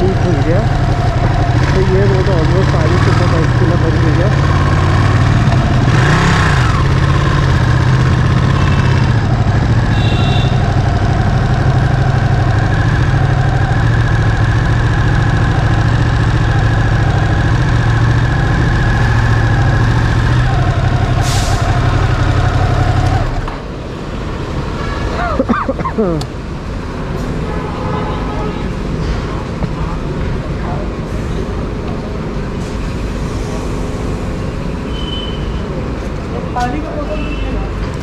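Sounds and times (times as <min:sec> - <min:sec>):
motorcycle engine running: 0:00.0 - 0:23.6.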